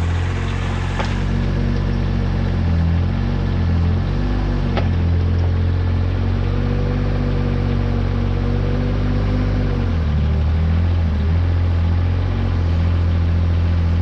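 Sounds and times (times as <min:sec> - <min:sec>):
diesel engine running: 0:00.0 - 0:14.0.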